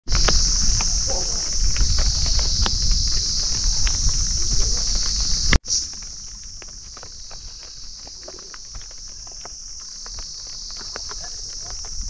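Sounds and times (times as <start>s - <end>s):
insects droning: 0.1s - 12.0s
raindrops tapping on tent: 0.1s - 12.0s
deep rumble: 0.4s - 5.6s.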